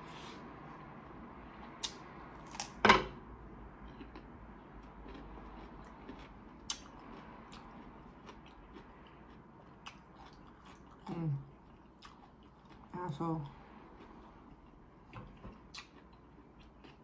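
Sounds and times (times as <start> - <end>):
close chewing: 3.9 - 13.2, 14.0 - 17.0.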